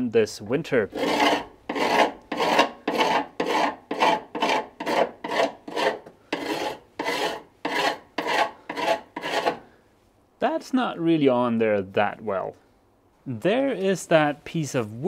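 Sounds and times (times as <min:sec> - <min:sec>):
hand tool rasping: 0:00.9 - 0:09.6.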